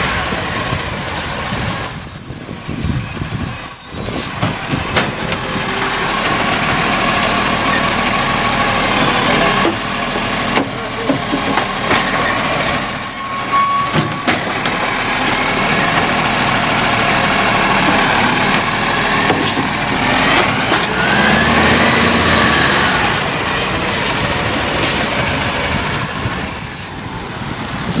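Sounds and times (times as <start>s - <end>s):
garbage truck diesel engine: 0.0s - 28.0s
high squeals: 1.0s - 4.5s, 12.3s - 14.4s, 24.7s - 28.0s.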